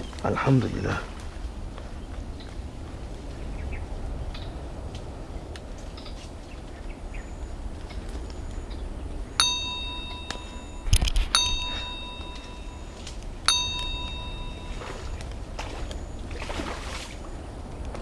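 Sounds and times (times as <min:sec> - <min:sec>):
bell-like notification dings: 0:09.4 - 0:15.2.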